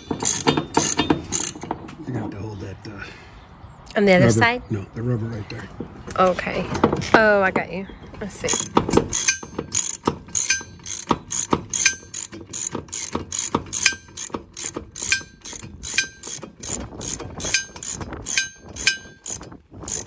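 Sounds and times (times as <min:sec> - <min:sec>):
socket ratchet clicking: 0:00.0 - 0:01.6, 0:08.5 - 0:20.0.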